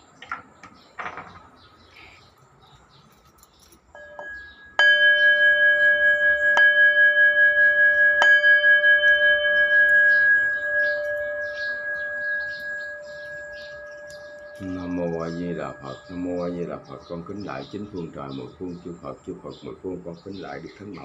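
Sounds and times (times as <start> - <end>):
bowl bell struck and ringing: 4.0 - 16.9.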